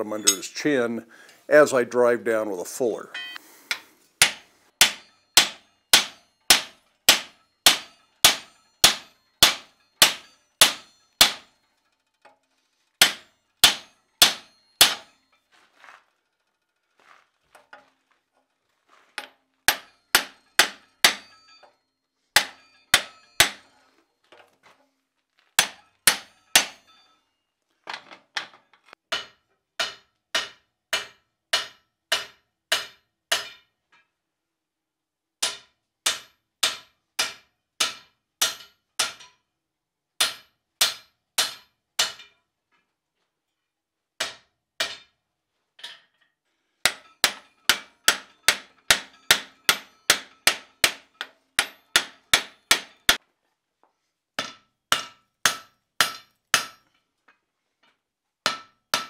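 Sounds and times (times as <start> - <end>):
hammer clanging on hot iron: 0.0 - 0.6, 3.1 - 11.6, 13.0 - 15.2, 19.2 - 21.8, 22.4 - 23.8, 25.6 - 27.2, 29.1 - 33.7, 35.4 - 39.4, 40.2 - 42.4, 44.2 - 45.1, 46.8 - 53.2, 54.4 - 56.9, 58.5 - 59.0.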